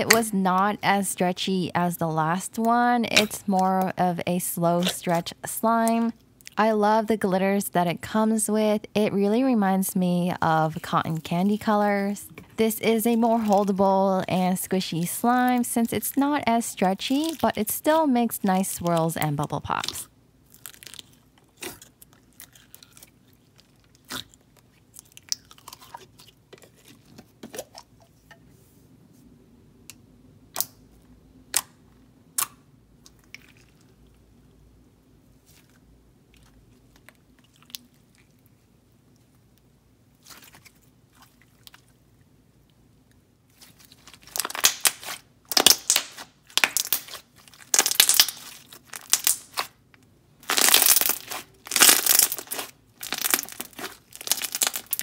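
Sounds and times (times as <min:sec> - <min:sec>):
slime squelching: 0:00.0 - 0:06.7, 0:09.2 - 0:28.0, 0:32.4 - 0:34.3, 0:35.4 - 0:39.5, 0:40.1 - 0:42.3, 0:43.4 - 0:49.8, 0:50.4 - 0:55.0
slime clicking and popping: 0:44.4 - 0:49.7, 0:50.4 - 0:55.0.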